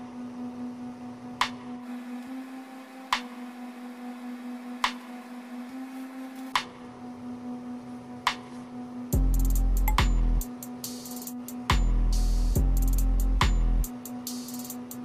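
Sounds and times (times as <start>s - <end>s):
steady low hum: 0.0s - 15.0s
loud music: 9.2s - 15.0s.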